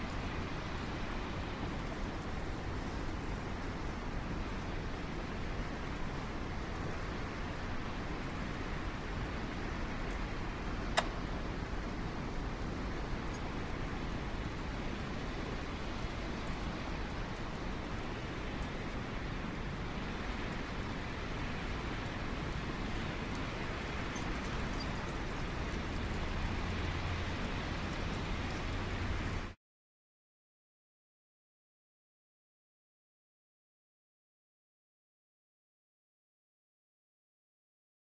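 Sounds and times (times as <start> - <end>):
wind hiss and rumble: 0.0 - 29.6
faint ticks: 13.3 - 13.5.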